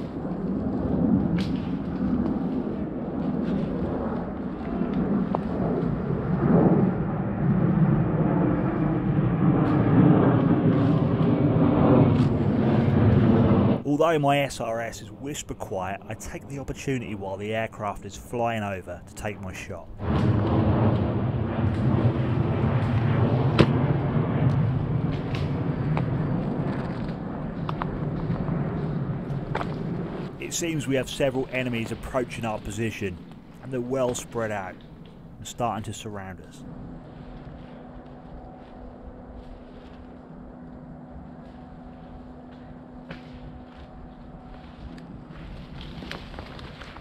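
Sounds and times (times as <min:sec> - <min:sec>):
aircraft flying over: 0:00.0 - 0:47.0.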